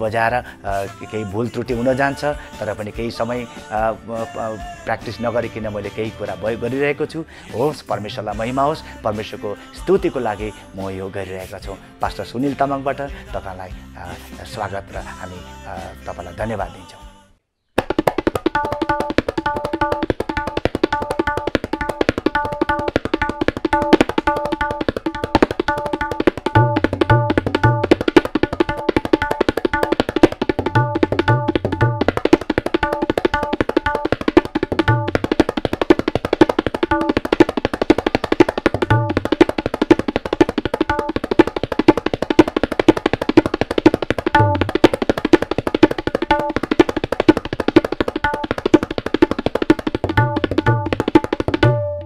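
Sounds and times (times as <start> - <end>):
tabla drumming: 1.5 - 6.4, 17.8 - 52.0.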